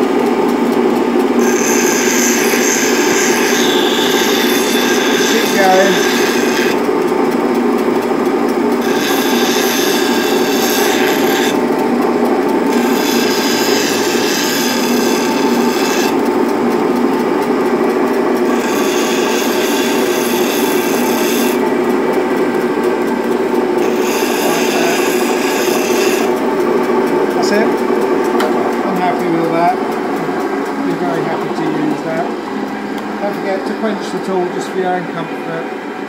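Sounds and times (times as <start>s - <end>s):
bench grinder running: 0.0s - 36.0s
chisel grinding on stone wheel: 1.4s - 6.8s, 8.8s - 11.7s, 12.7s - 16.2s, 18.5s - 21.9s, 23.2s - 26.7s.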